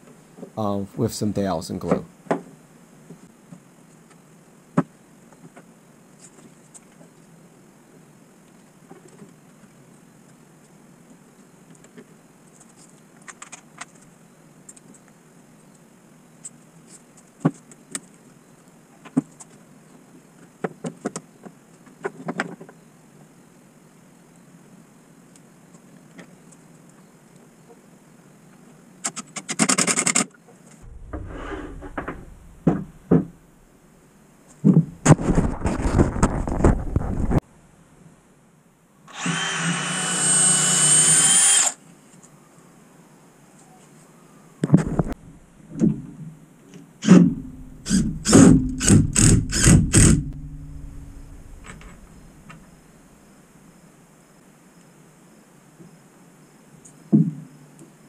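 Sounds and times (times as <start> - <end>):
sharp wooden knocks: 30.8 - 33.5, 47.1 - 52.6
impact driver driving a screw: 39.1 - 41.8, 47.8 - 52.1.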